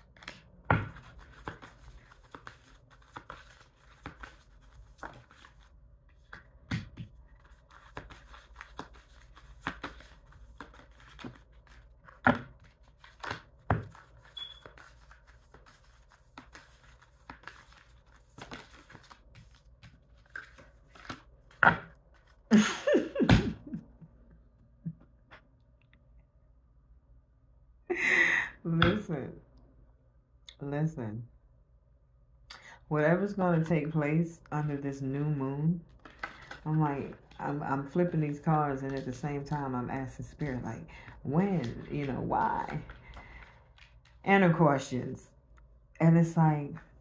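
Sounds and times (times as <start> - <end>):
cards being shuffled: 0.0 - 22.4, 35.9 - 44.2.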